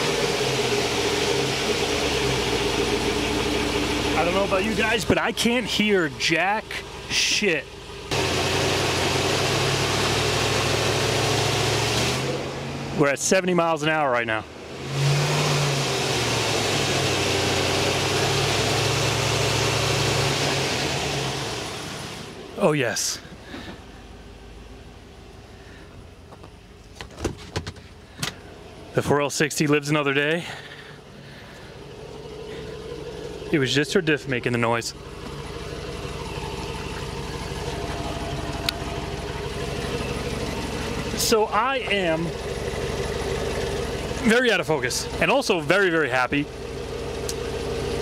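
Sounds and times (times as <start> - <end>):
car engine drone: 0.0 - 48.0
road and wind noise: 23.3 - 29.0.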